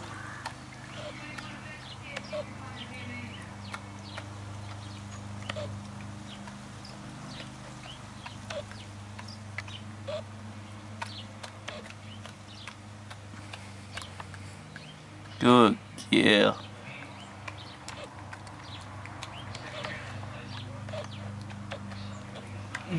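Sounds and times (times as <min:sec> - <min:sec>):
dog licking and lip smacking: 0:16.9 - 0:22.9.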